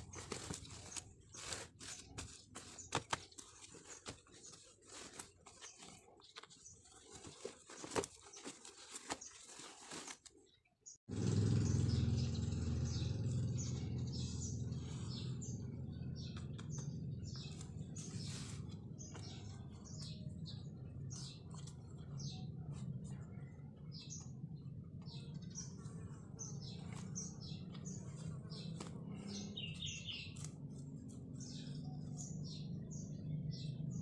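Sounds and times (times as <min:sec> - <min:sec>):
rustling of handled fabric: 0:00.0 - 0:10.5
small birds chirping: 0:00.0 - 0:34.0.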